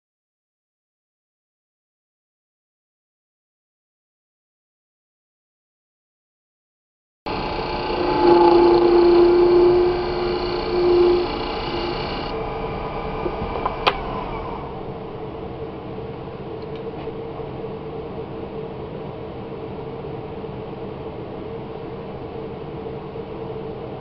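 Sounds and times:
wood lathe chisel scraping: 0:07.3 - 0:12.3
lathe coasting down: 0:07.3 - 0:12.4.

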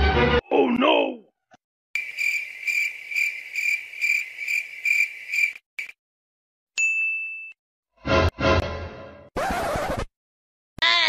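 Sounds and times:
cricket chirping: 0:02.0 - 0:06.0
bell-like ding: 0:06.8 - 0:07.6.

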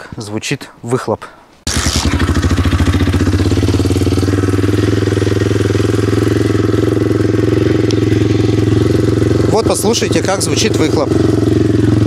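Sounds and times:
motorcycle engine idling: 0:01.7 - 0:12.0.

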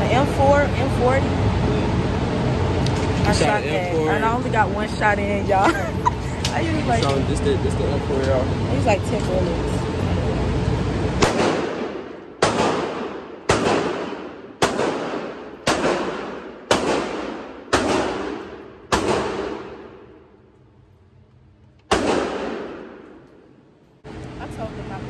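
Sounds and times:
rifle shots in indoor range: 0:11.2 - 0:23.6.

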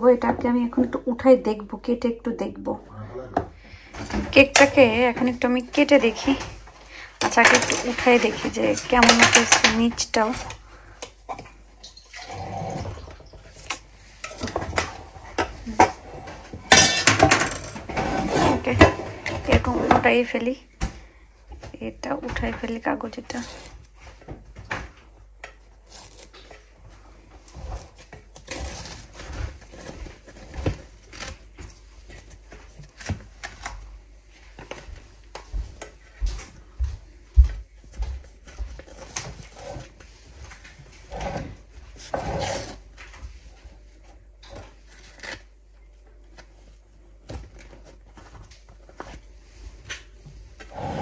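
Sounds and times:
baking paper crinkling: 0:07.3 - 0:10.9.

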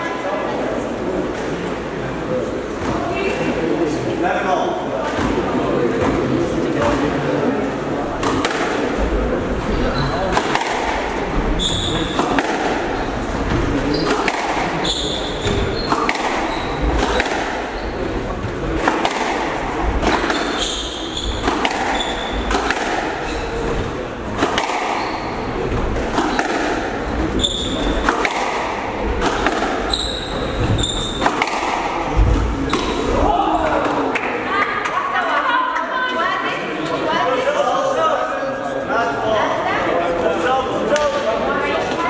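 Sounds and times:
squash ball hitting rackets and walls: 0:08.1 - 0:09.4, 0:10.0 - 0:34.1
shoe squeaks on wooden floor: 0:09.9 - 0:10.3, 0:11.6 - 0:12.2, 0:13.8 - 0:16.9, 0:20.3 - 0:22.5, 0:23.2 - 0:23.8, 0:24.9 - 0:25.7, 0:27.3 - 0:28.0, 0:29.8 - 0:31.4.

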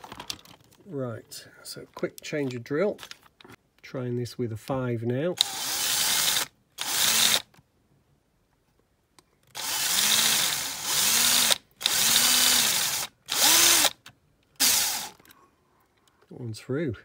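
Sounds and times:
electric drill drilling metal: 0:05.4 - 0:07.4, 0:09.6 - 0:14.0, 0:14.6 - 0:15.2.

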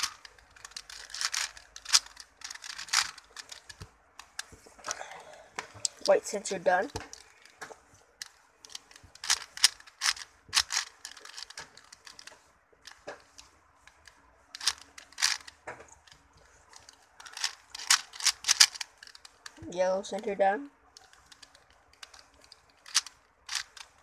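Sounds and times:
puzzle cube plastic clicks: 0:00.0 - 0:04.6, 0:06.8 - 0:19.6, 0:20.9 - 0:24.0.

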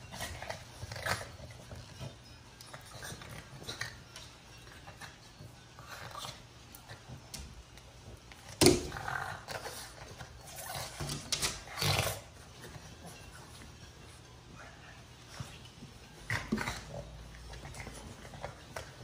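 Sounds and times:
dogs growling and snarling: 0:00.0 - 0:04.1, 0:08.8 - 0:12.5, 0:16.2 - 0:19.0.

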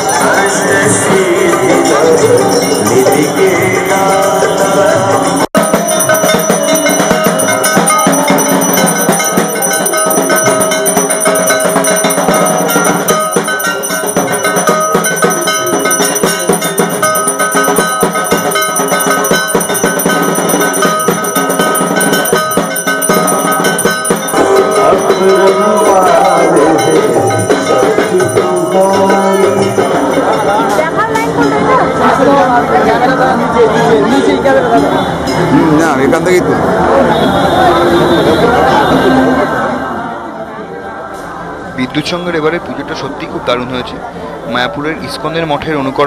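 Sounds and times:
music: 0:00.0 - 0:39.2
hand bell ringing: 0:01.4 - 0:31.6.

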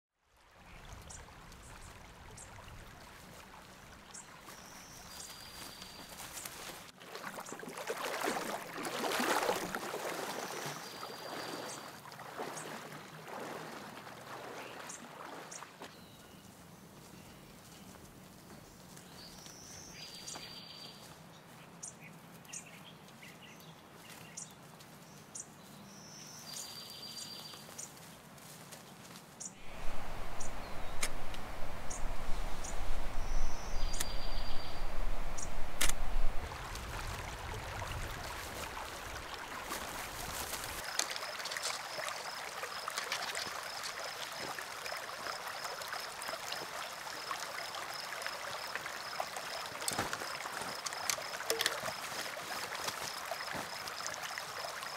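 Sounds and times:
creek water running: 0:00.2 - 0:21.5, 0:27.5 - 0:54.9
birds chirping: 0:29.4 - 0:36.6.

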